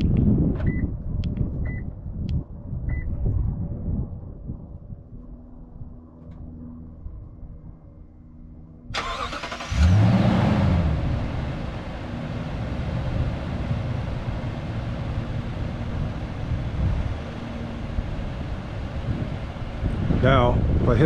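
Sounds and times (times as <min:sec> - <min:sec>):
engine starter cranking: 0:09.0 - 0:10.0
engine revving then idling: 0:09.0 - 0:20.1.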